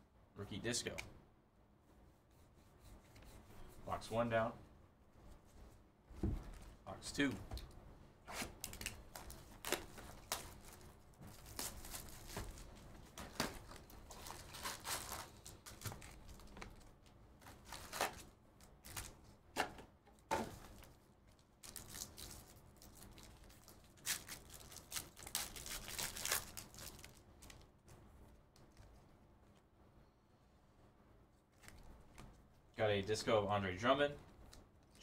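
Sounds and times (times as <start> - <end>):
foil packs tearing and crinkling: 8.5 - 16.5, 17.5 - 19.2, 21.6 - 27.6.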